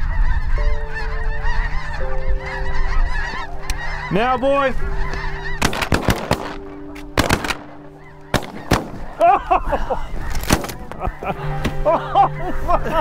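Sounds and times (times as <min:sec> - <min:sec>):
geese honking: 0:00.0 - 0:13.0
shotgun blasts: 0:05.6 - 0:09.2, 0:10.4 - 0:10.9.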